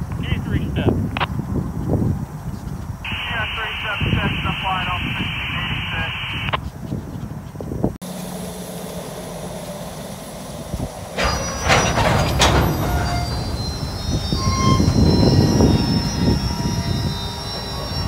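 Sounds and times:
train wheels rumbling: 7.3 - 18.0
high-pitched wheel squeal: 10.5 - 18.0
metallic clanks: 11.1 - 18.0.

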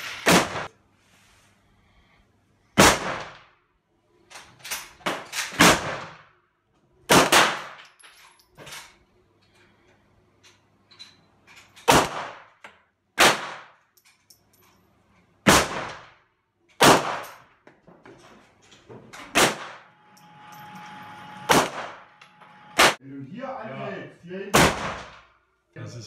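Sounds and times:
pistol shots: 0.2 - 0.7, 2.8 - 3.5, 5.6 - 6.2, 7.1 - 7.8, 11.9 - 12.6, 13.2 - 13.8, 15.4 - 16.2, 16.8 - 17.4, 19.3 - 19.9, 21.5 - 22.1, 22.8 - 23.0, 24.5 - 25.3.

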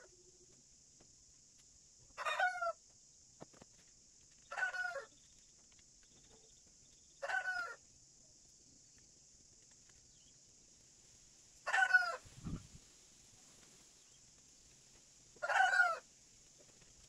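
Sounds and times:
chicken calling: 4.5 - 5.1, 7.2 - 7.8, 11.7 - 12.6, 15.4 - 16.0.

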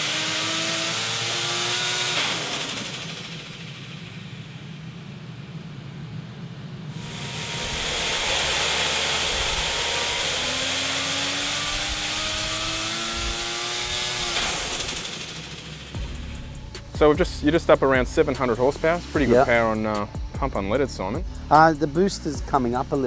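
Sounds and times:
rotary engine revving: 0.0 - 4.3, 6.9 - 20.1.

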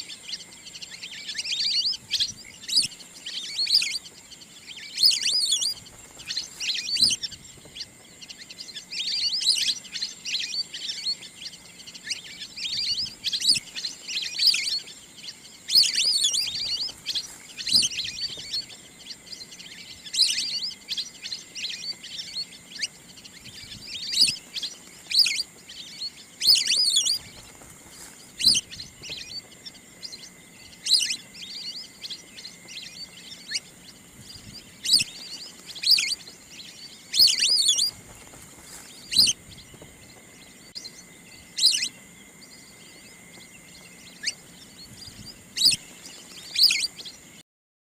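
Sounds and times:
duck twittering calls: 15.6 - 18.6, 26.4 - 27.6, 28.3 - 29.5, 30.8 - 31.2, 34.6 - 36.3, 37.1 - 40.0, 41.6 - 42.0, 45.5 - 45.8, 46.5 - 47.1.

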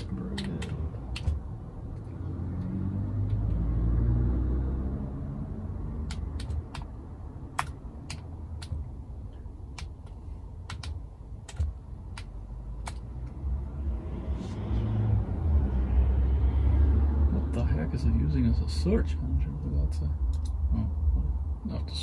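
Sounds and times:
keyboard keys clicking: 0.0 - 1.4, 6.1 - 6.9, 9.7 - 13.0
steady low rumble: 5.0 - 16.6.

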